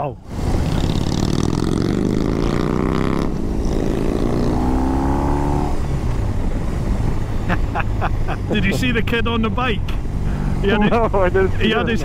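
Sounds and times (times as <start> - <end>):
motorcycle engine accelerating: 0.4 - 6.4.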